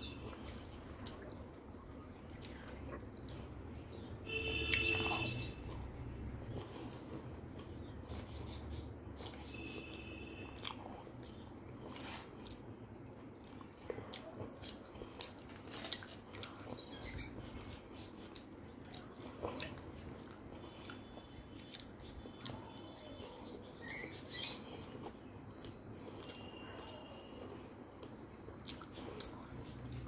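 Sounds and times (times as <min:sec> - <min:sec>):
chewing and biting: 0:00.0 - 0:04.0, 0:04.6 - 0:30.0.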